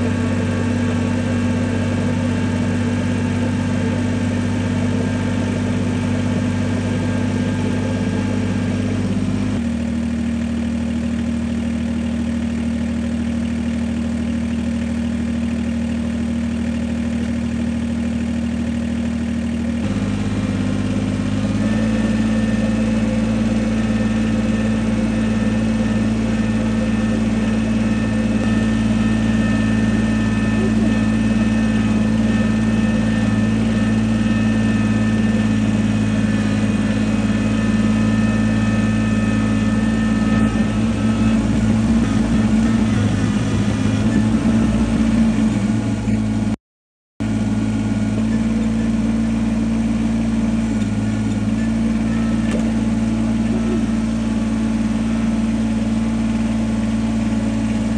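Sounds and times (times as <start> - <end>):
vehicle engine droning: 0.0 - 46.6, 47.2 - 57.9.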